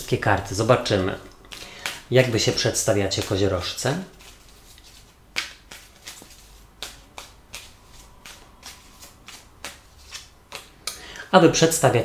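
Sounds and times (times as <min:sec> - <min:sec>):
cards shuffling and snapping: 0:01.5 - 0:11.0.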